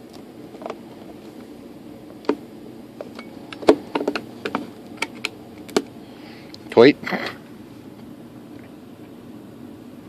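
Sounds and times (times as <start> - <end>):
hands tapping plastic parts: 3.0 - 5.9.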